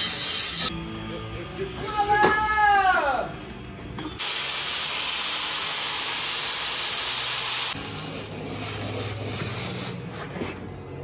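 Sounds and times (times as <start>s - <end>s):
welder humming: 0.0s - 0.7s, 4.2s - 10.0s.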